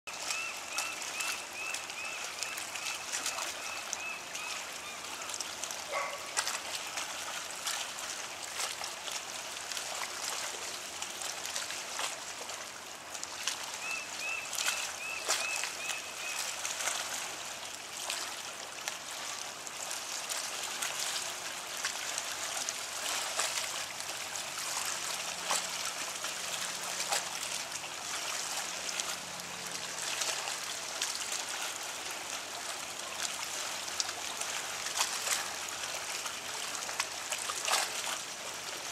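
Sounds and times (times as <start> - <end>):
seawater lapping among rocks: 0.1 - 38.9.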